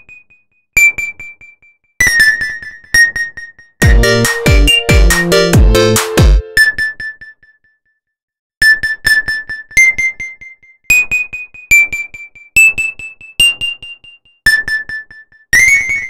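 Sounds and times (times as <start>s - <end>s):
synthesized keyboard melody: 3.8s - 6.6s.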